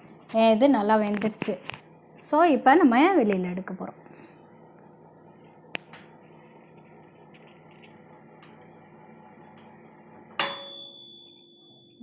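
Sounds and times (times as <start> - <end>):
oven humming: 0.0 - 12.0
metallic ding ringing: 10.4 - 12.0.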